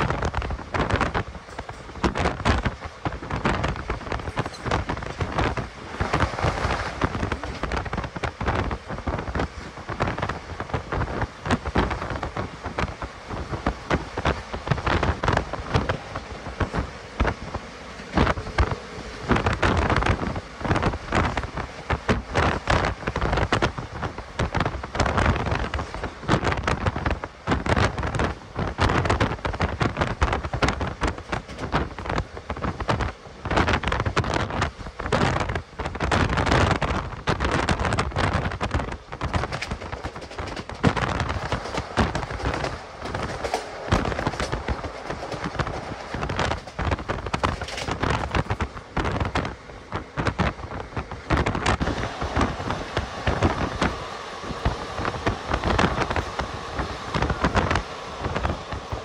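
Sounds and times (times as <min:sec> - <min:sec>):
continuous rushing noise: 0:00.0 - 0:59.0
train wheels clattering on track: 0:00.0 - 0:59.0.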